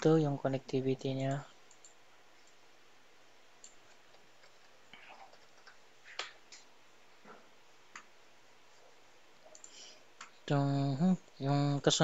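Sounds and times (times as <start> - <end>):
computer keyboard and mouse clicks: 1.3 - 2.6, 3.6 - 6.7, 7.9 - 8.1, 9.5 - 10.4.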